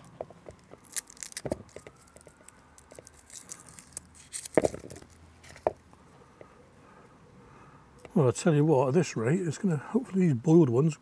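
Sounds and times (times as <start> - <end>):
shallot skins crackling and tearing: 0.0 - 5.6.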